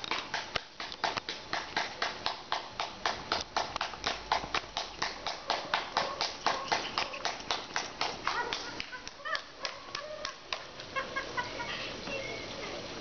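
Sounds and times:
hands clapping quickly: 0.0s - 10.9s.

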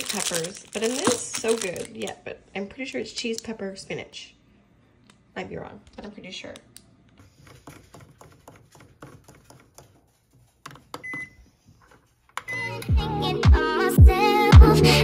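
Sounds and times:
microwave beep: 11.0s - 11.5s, 12.4s - 12.7s.

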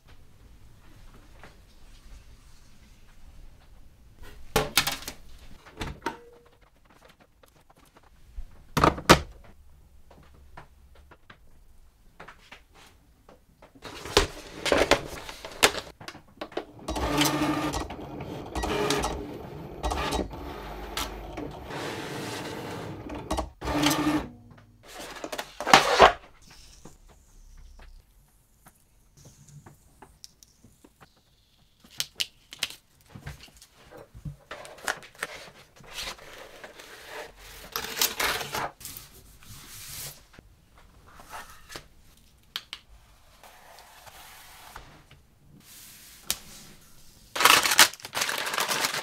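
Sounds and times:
cutting machine motor hum: 16.7s - 24.3s.

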